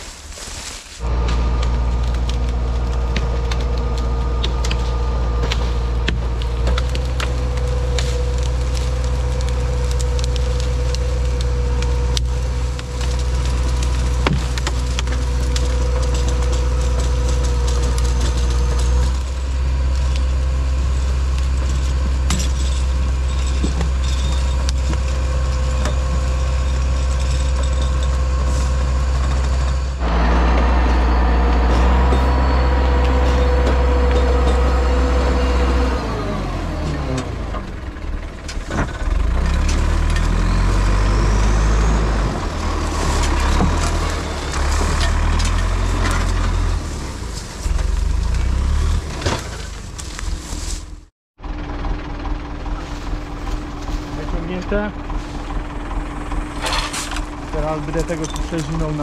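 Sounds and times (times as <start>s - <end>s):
branches cracking and snapping: 0.0s - 29.8s, 38.5s - 51.1s
diesel engine under load: 0.0s - 59.0s
winch whine: 1.0s - 47.9s.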